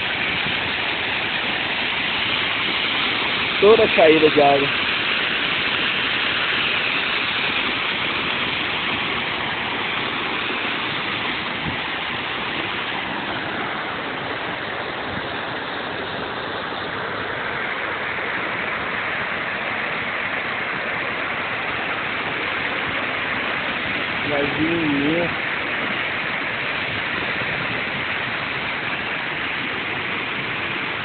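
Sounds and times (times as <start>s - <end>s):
waterfall roaring over rocks: 0.0s - 31.0s.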